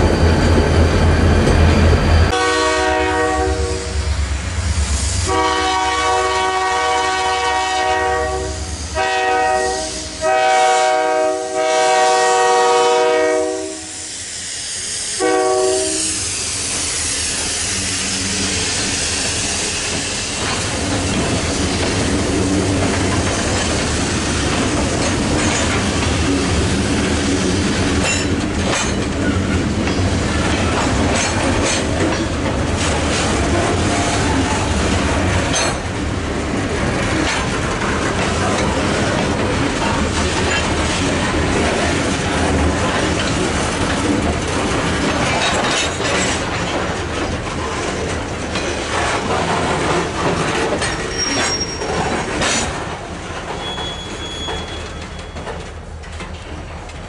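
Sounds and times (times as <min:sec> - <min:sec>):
freight train passing: 0:00.0 - 0:57.0
train air horn blasts: 0:02.3 - 0:04.2, 0:05.1 - 0:14.2, 0:15.2 - 0:16.3
wheels clicking over rail joints: 0:19.2 - 0:57.0.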